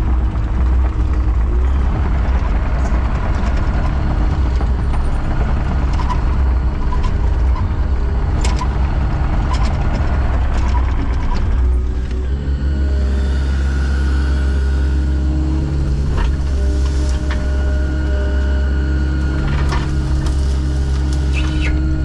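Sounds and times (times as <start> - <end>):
heavy machinery engine humming: 0.0 - 22.0.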